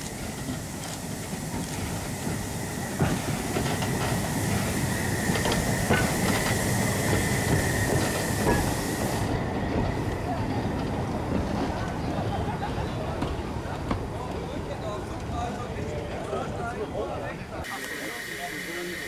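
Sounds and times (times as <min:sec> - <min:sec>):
train wheels clicking over rail joints: 0:00.0 - 0:12.1
train rumble: 0:00.0 - 0:19.0.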